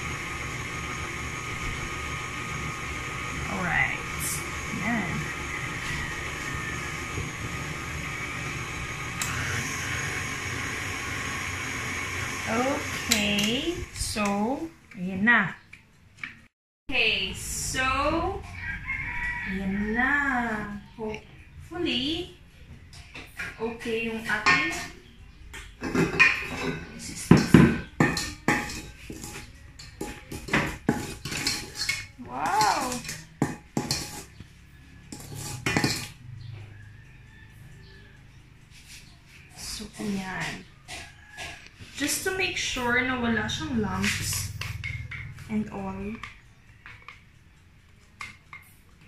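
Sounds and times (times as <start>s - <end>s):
stand mixer churning batter: 0.0s - 13.1s
spatula scraping a metal bowl: 25.8s - 36.3s, 38.7s - 46.3s.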